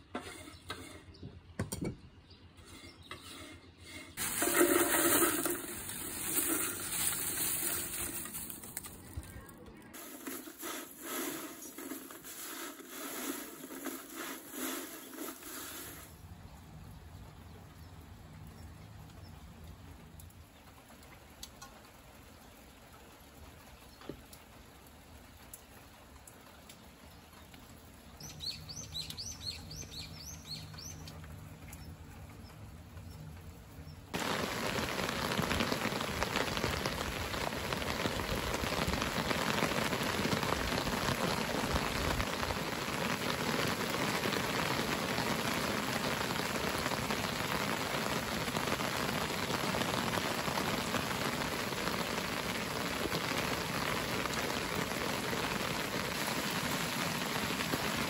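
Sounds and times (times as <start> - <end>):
dried greens crackling: 4.2 - 16.1, 34.1 - 58.0
rain: 4.2 - 58.0
bird chirping: 28.2 - 34.1.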